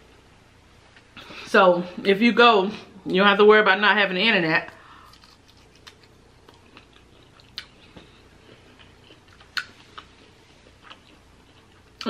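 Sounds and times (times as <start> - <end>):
person chewing food: 4.9 - 12.0.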